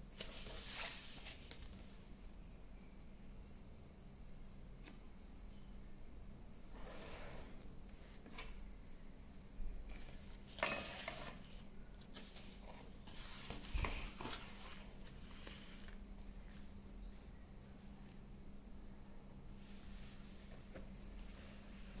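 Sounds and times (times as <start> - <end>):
paper rustling: 0.1 - 2.0, 9.9 - 16.7.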